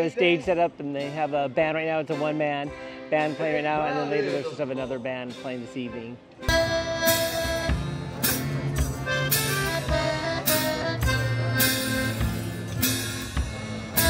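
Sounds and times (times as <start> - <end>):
one-man band music: 0.0 - 14.0.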